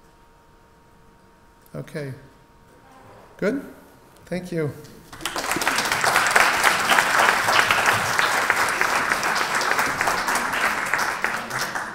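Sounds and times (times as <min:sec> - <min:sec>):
audience applauding: 0:05.1 - 0:11.9.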